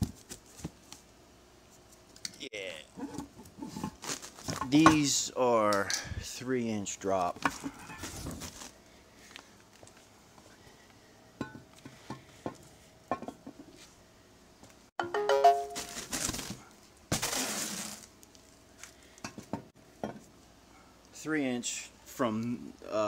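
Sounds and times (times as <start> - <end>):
packaging rustle: 4.0 - 4.7, 7.5 - 8.8, 15.8 - 18.6.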